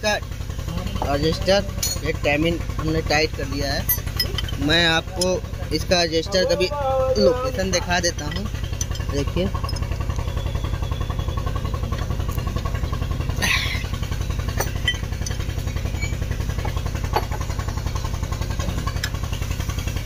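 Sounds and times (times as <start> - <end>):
engine idling: 0.0 - 20.0
spanner clicking on metal: 1.8 - 2.2, 3.8 - 6.0, 7.2 - 10.3, 14.4 - 17.5.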